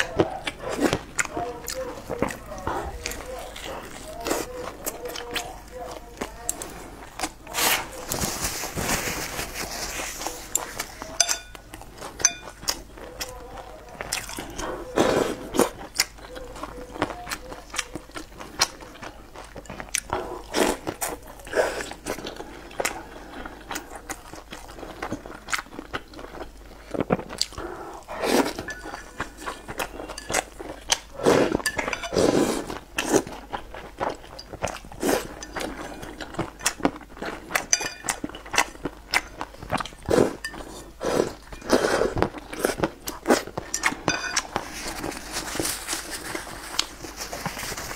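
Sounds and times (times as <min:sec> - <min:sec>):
slurping and chewing: 0:00.0 - 0:47.9
chopsticks clinking ceramic bowl: 0:10.5 - 0:12.8, 0:28.4 - 0:32.4, 0:37.6 - 0:38.6, 0:40.4 - 0:40.9, 0:43.6 - 0:45.0.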